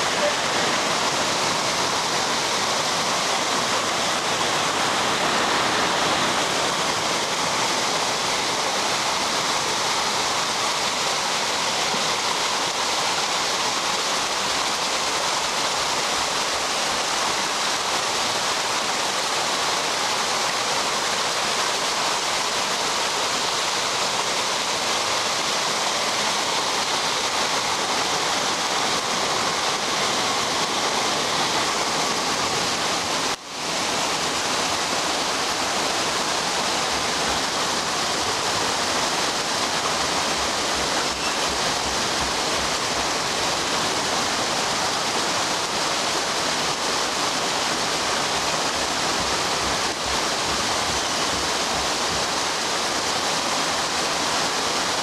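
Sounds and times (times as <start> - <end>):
waterfall rushing over rocks: 0.0 - 55.0.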